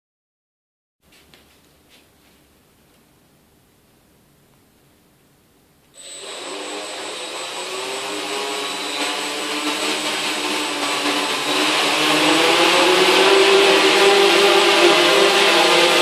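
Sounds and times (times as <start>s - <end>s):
quadcopter motors droning: 6.0s - 16.0s
thin high whine: 6.0s - 16.0s.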